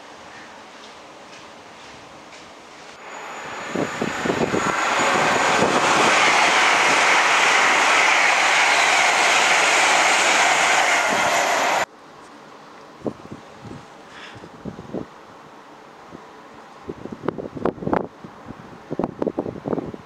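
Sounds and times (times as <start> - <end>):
train wheel clatter: 0.8 - 11.9
train rushing past: 3.0 - 11.9.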